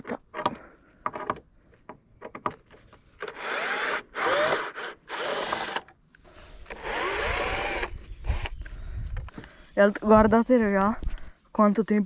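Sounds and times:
cordless drill motor whine: 3.2s - 5.8s, 6.5s - 8.7s.

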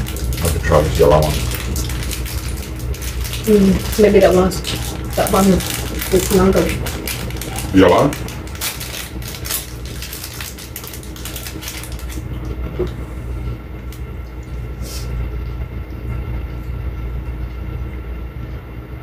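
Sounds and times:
crinkling and clicking handling noise: 0.0s - 13.0s
low rumbling hum: 0.0s - 19.0s.

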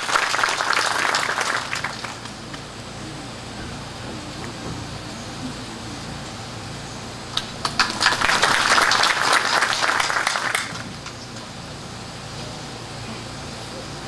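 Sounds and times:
audience applauding: 0.0s - 2.7s, 7.3s - 11.2s.

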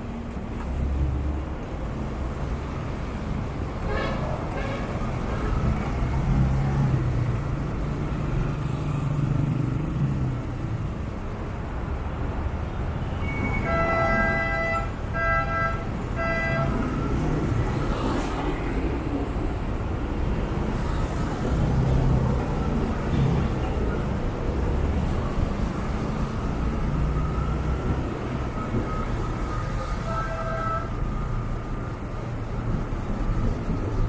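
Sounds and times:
road noise: 0.0s - 34.0s
vehicle horn beeps: 13.1s - 16.9s, 28.8s - 31.0s.

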